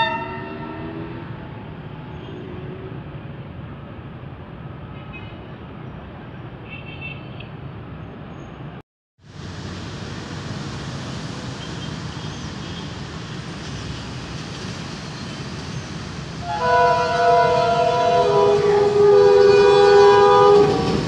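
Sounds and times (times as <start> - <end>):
locomotive horn chord: 0.0 - 1.4, 16.4 - 21.0
diesel locomotive rumbling: 0.0 - 6.6, 9.2 - 21.0.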